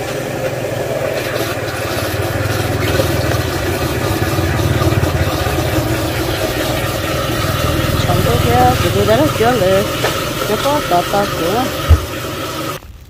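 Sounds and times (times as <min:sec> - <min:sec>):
vehicle engine running: 0:00.0 - 0:12.8.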